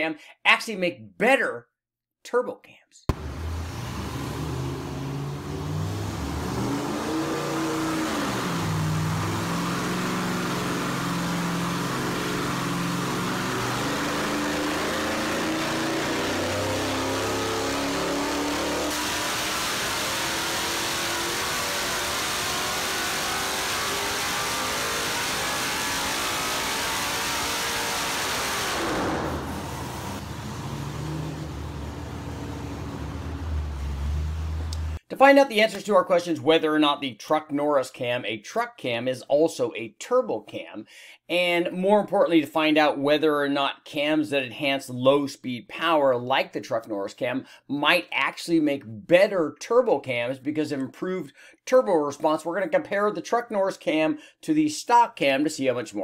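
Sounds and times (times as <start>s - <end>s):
engine revving on dyno: 3.1s - 35.0s.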